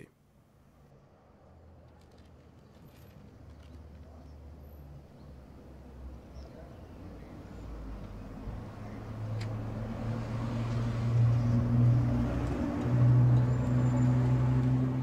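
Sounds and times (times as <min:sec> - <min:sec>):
pickup truck driving past: 0:07.8 - 0:15.0.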